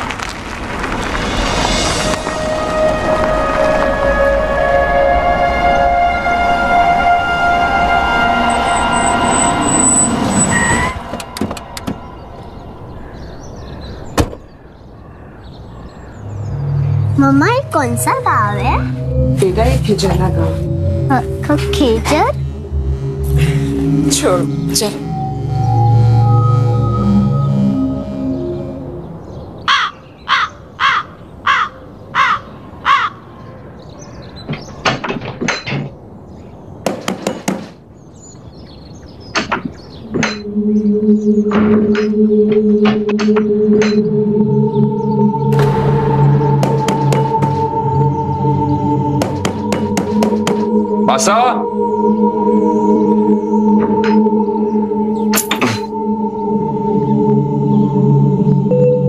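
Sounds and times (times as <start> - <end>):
music cue: 1.7 - 13.0, 16.2 - 29.5, 40.0 - 59.0
car engine rumble: 7.4 - 29.6, 39.6 - 58.9
crow cawing: 12.9 - 16.2, 29.7 - 33.3.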